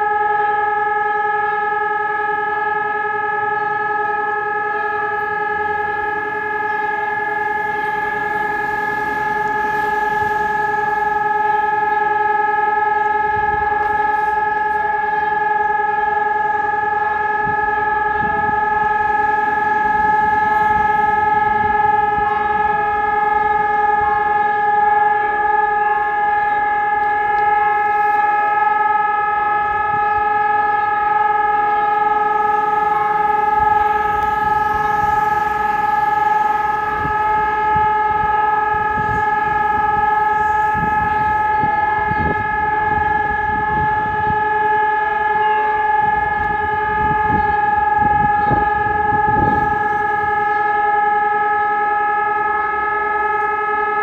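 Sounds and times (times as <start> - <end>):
distant electronic siren steady tone: 0.0 - 54.0.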